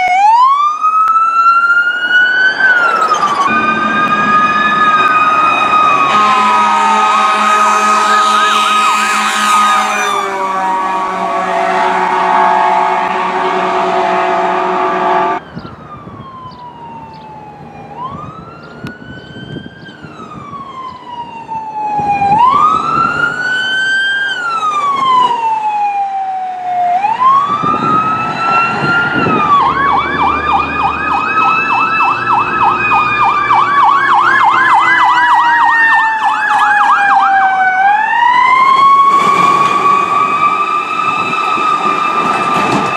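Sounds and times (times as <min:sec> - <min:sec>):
electronic sirens wailing: 0:00.0 - 0:42.9
fast siren yelp: 0:00.0 - 0:42.9
loud steady tone: 0:02.7 - 0:15.4.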